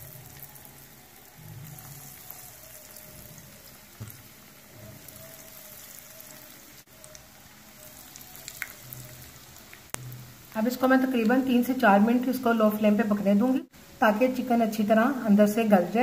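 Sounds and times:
chicken sizzling in hot oil: 0:00.0 - 0:14.0
soft knocks in frying pan: 0:04.0 - 0:04.3.

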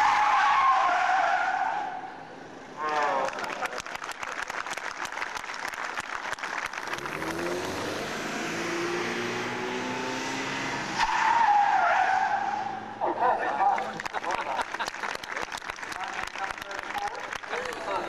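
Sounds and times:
car engines revving: 0:05.3 - 0:18.0
tyre squeal: 0:11.0 - 0:12.8.

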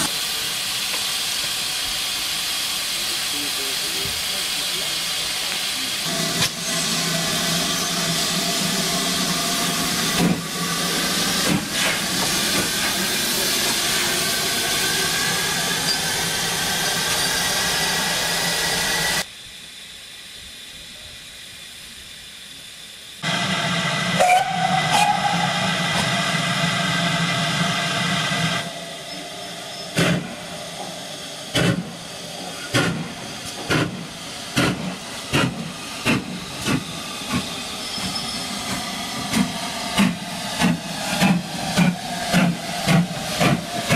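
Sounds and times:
steam hissing: 0:00.0 - 0:43.9
steam whistle: 0:23.2 - 0:26.2.

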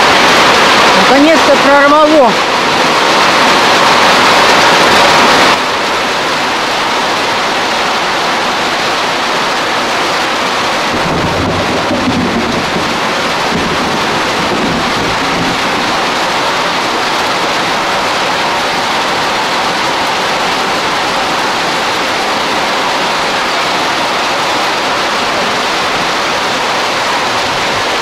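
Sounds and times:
heavy rain on corrugated roof: 0:00.0 - 0:28.0
thunder rumbling: 0:10.4 - 0:28.0.

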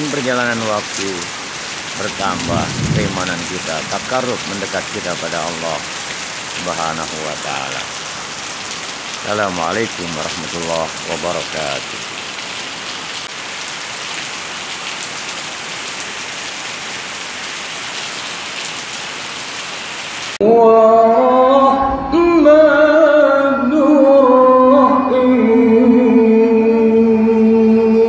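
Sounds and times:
heavy rain on pavement: 0:00.0 - 0:20.4.

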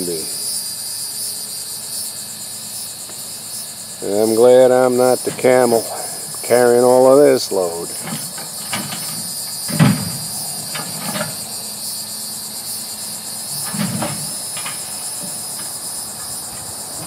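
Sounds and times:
insects droning: 0:00.0 - 0:17.0
heavy concrete ties clunking: 0:04.2 - 0:11.7.

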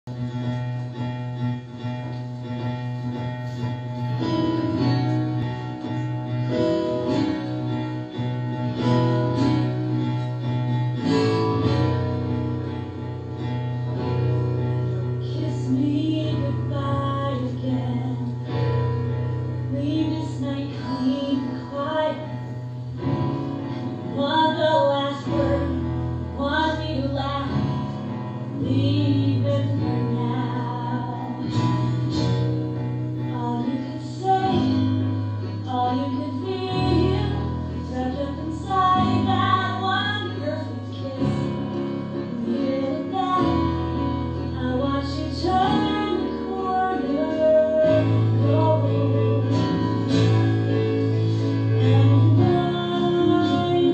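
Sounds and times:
piano and guitar chords: 0:00.0 - 0:53.9
woman singing: 0:13.4 - 0:53.9.

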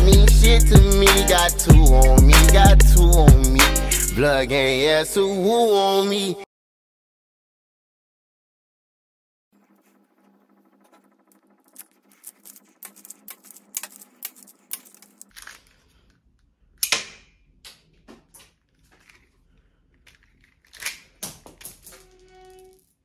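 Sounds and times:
plastic clicks and rattles: 0:11.7 - 0:16.2, 0:16.8 - 0:22.2
sharp plastic snaps: 0:16.8 - 0:19.2.

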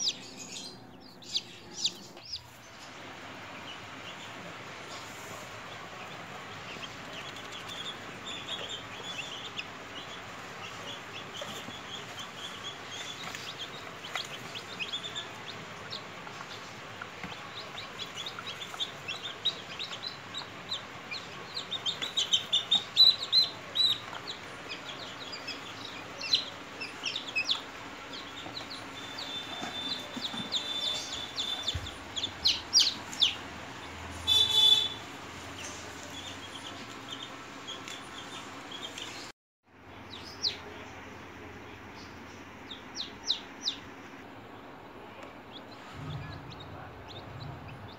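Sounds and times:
chicks peeping: 0:00.0 - 0:39.3, 0:39.9 - 0:47.9.

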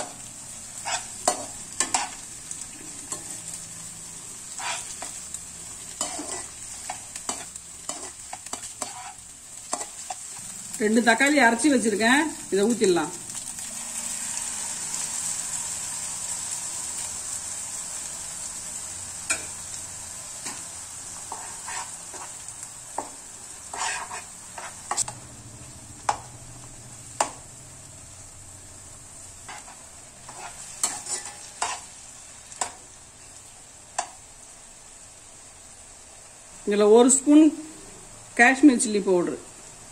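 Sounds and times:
food sizzling in a pan: 0:00.0 - 0:39.9
spatula scraping and tapping pan: 0:00.8 - 0:02.2, 0:04.5 - 0:05.2, 0:06.0 - 0:10.3, 0:19.3 - 0:19.5, 0:21.3 - 0:25.2, 0:29.5 - 0:31.9.

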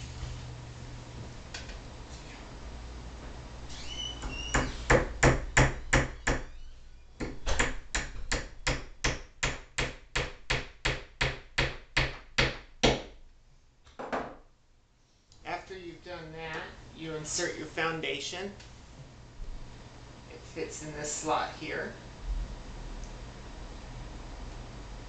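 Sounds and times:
hammer nailing into wood: 0:04.5 - 0:06.5, 0:07.2 - 0:13.1.

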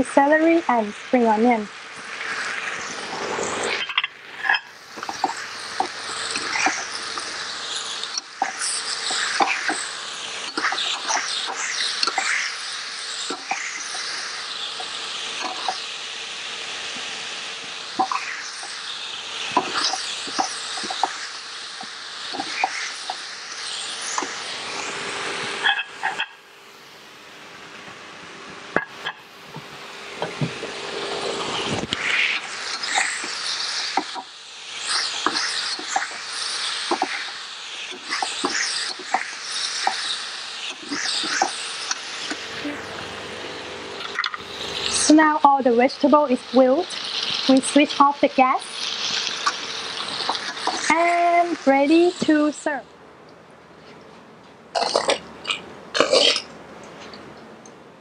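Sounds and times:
stir-fry sizzling in a wok: 0:00.0 - 0:53.0
metal utensil scraping wok: 0:02.2 - 0:15.9.

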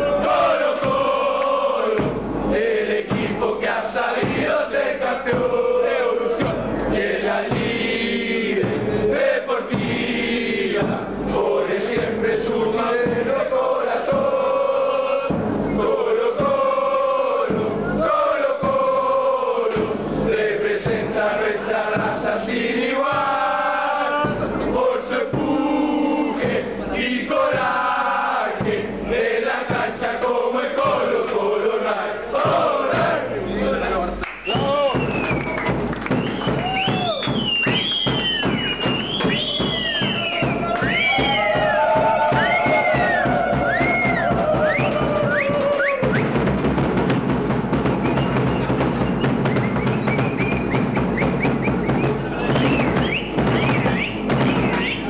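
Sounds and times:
crowd chanting in unison: 0:00.0 - 0:34.2, 0:39.2 - 0:46.2
drum: 0:00.0 - 0:55.0.

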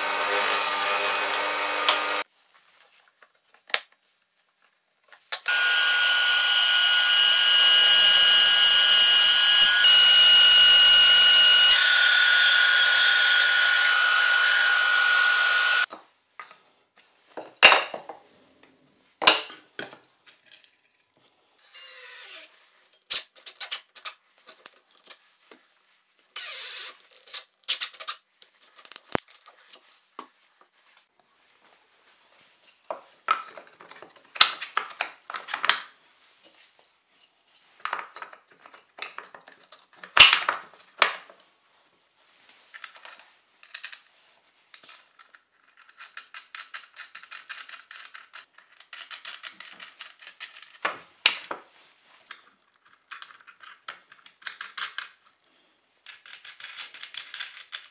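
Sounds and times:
cordless drill driving a screw: 0:00.0 - 0:02.2, 0:05.5 - 0:15.9, 0:21.8 - 0:22.5, 0:26.4 - 0:27.0.

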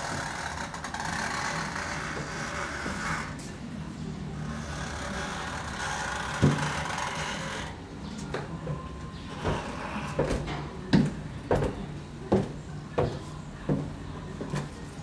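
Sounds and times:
footsteps and dull thuds: 0:10.2 - 0:14.7.

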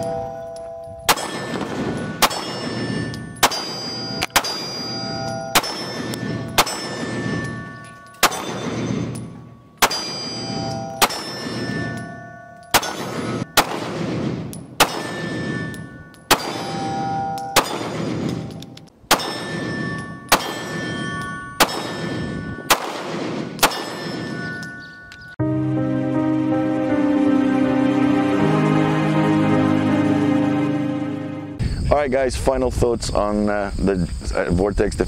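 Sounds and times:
steel target ringing: 0:00.0 - 0:25.4
pistol shots: 0:01.1 - 0:12.0, 0:12.7 - 0:24.7.

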